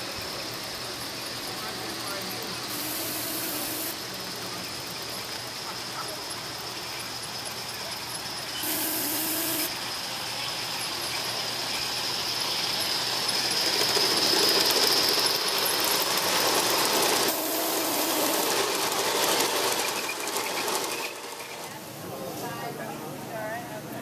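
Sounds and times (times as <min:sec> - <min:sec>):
wheels rattling on track: 0:00.0 - 0:08.7, 0:09.6 - 0:23.9
steam locomotive exhaust: 0:00.0 - 0:22.4
wheels clicking: 0:09.7 - 0:21.8.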